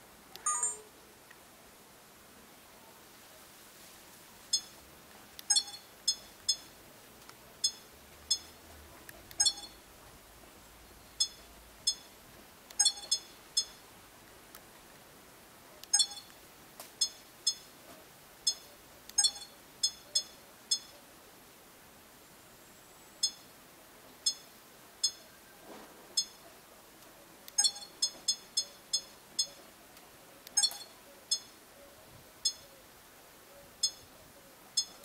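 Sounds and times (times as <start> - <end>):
camera button beeps: 0.4 - 0.9, 5.4 - 6.7, 9.3 - 9.8, 12.7 - 13.8, 15.8 - 16.4, 18.5 - 20.9, 27.5 - 29.6, 30.5 - 31.5.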